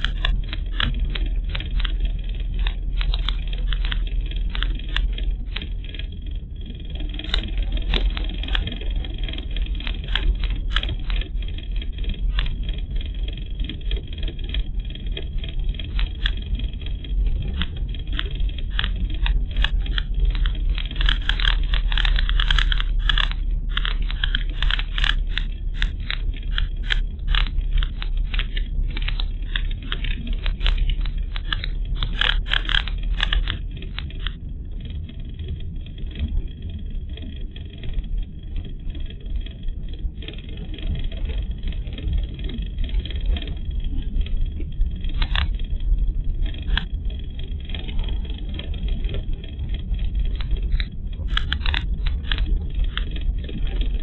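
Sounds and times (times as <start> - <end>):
car road and engine rumble: 0.0 - 34.9
sharp clicks and rattles: 0.0 - 54.0.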